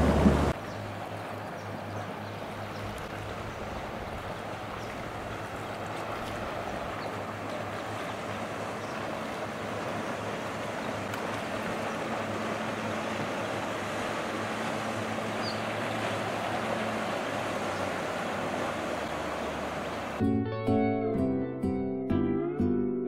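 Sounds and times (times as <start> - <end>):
wind on microphone: 0.0 - 0.6
water rushing: 0.0 - 20.2
powerboat engine humming: 0.0 - 22.5.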